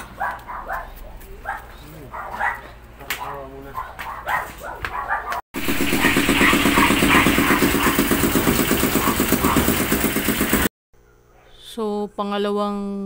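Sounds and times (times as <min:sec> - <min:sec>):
suction pump pulsing and hissing: 0:05.6 - 0:10.7.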